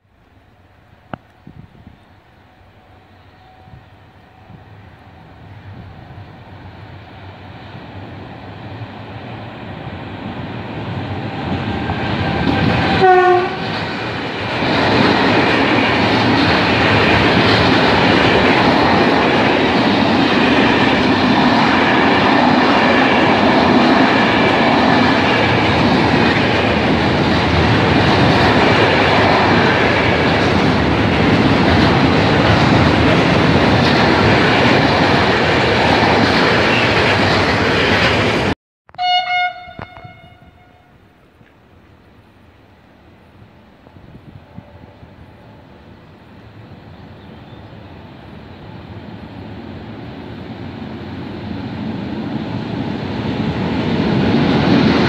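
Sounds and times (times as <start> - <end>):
train wheels rumbling on rails: 0.0 - 38.6, 39.5 - 55.0
train horn blast: 2.4 - 5.4, 11.2 - 13.8, 38.9 - 41.2.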